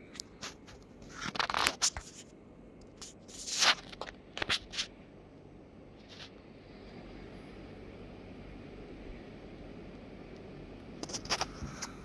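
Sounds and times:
packaging rustling and scraping: 0.4s - 2.3s, 3.0s - 5.0s, 11.0s - 12.0s.

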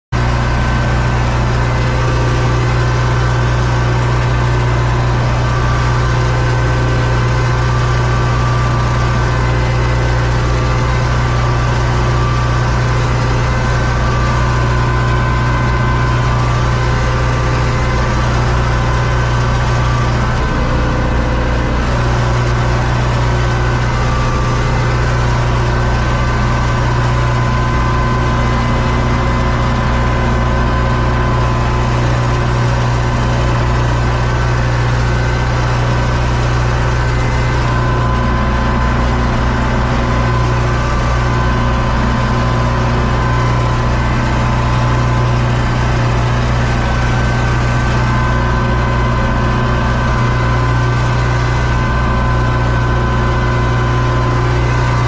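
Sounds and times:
tractor diesel engine drone: 0.1s - 55.0s.

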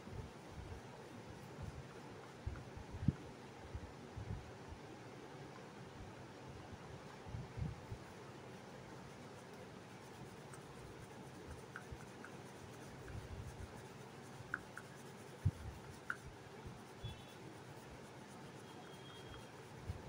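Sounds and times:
pastel scratching on paper: 0.0s - 2.8s, 7.8s - 20.0s.

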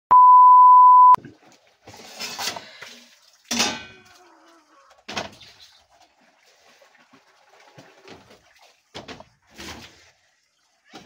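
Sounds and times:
high test tone beep: 0.1s - 1.2s
metal kitchenware clinking: 3.5s - 4.1s.

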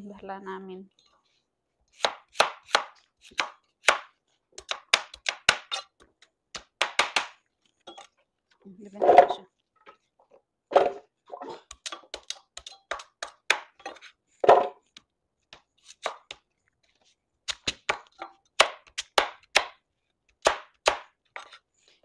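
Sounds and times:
knife chopping on cutting board: 2.0s - 5.9s.

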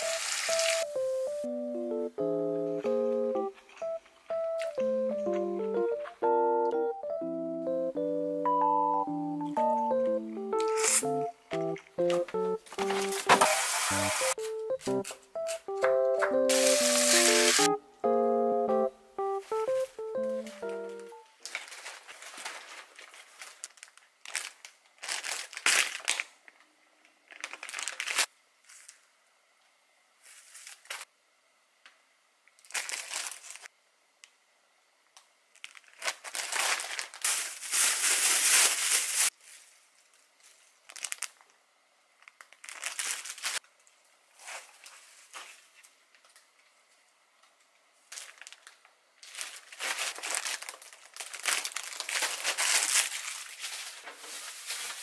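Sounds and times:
plastic bags crinkling: 10.6s - 14.5s, 21.4s - 29.0s, 32.6s - 33.7s, 35.5s - 41.6s, 42.2s - 43.6s, 48.1s - 55.0s.

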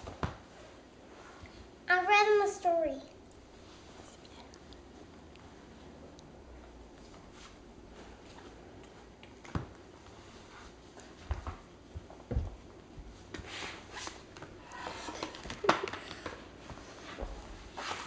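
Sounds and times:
book rustling and scraping: 16.8s - 18.0s.

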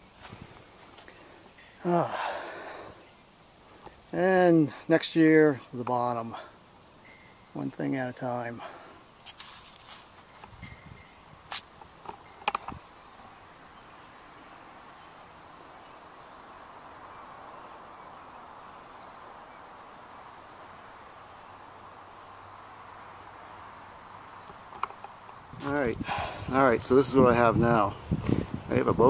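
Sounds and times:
steady hiss: 0.0s - 29.0s
high insect chirp: 6.4s - 28.7s
sharp clicks: 11.5s - 12.8s.

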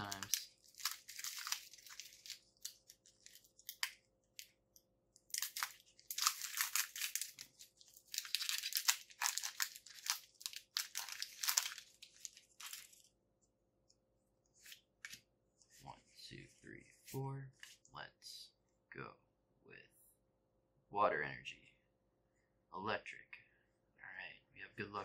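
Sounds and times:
foil wrapper crinkling and tearing: 0.0s - 4.5s, 5.3s - 13.1s.

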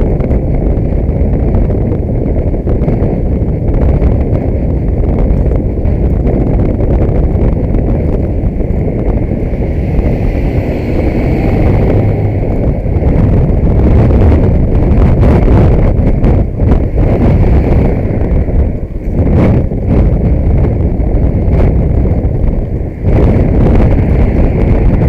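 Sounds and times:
car road and engine rumble: 0.0s - 25.0s.

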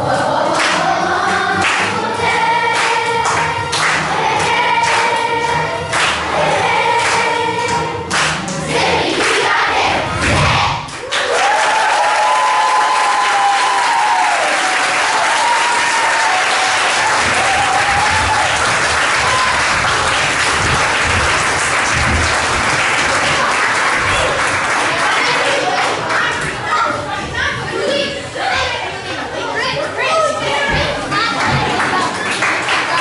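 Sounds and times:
cheers and whoops: 11.0s - 19.8s
audience applauding: 11.0s - 26.3s, 31.7s - 33.0s.

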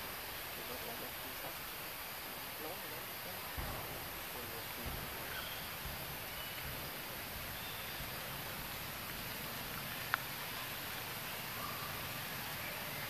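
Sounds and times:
forest ambience hiss: 0.0s - 13.0s
faint high chirps: 7.5s - 8.2s, 10.0s - 13.0s.

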